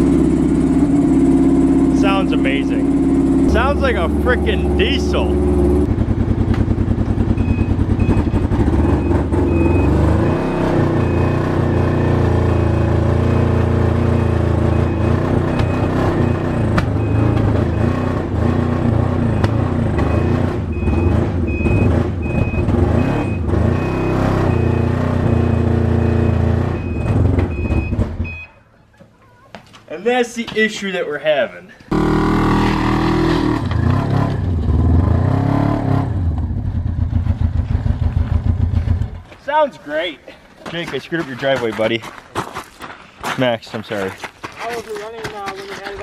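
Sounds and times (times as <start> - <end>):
snowmobile engine running rough: 0.0 - 9.0
short high beep: 20.1 - 28.6.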